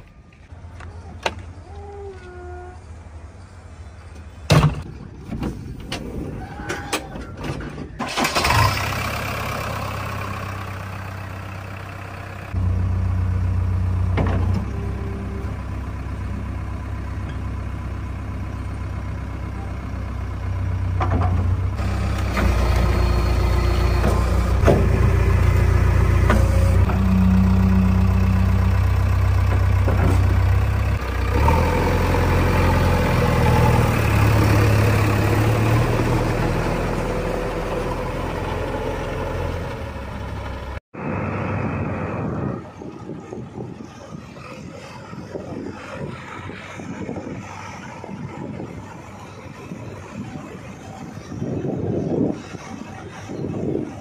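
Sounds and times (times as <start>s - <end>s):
diesel engine starting and revving: 7.7s - 54.0s.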